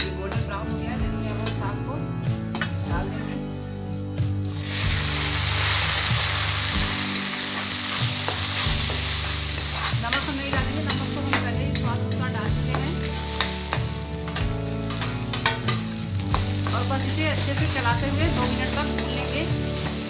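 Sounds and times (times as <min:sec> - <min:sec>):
greens sizzling in hot oil: 0:04.4 - 0:20.0
ladle scraping a pan: 0:13.1 - 0:16.7.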